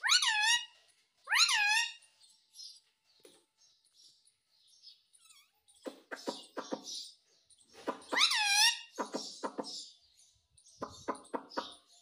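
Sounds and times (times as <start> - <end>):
faint high bird chatter: 0.0 - 12.0
parakeet calling: 7.9 - 9.9.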